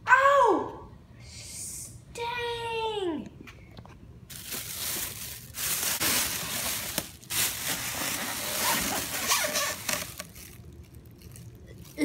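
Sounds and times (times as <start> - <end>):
plastic and foam packaging rustling: 4.3 - 12.0.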